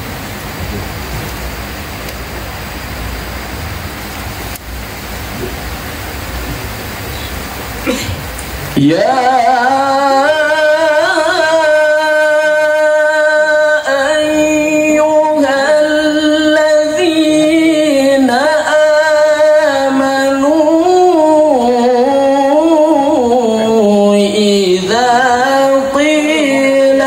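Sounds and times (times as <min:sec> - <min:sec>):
man chanting melodically: 0:08.6 - 0:27.0.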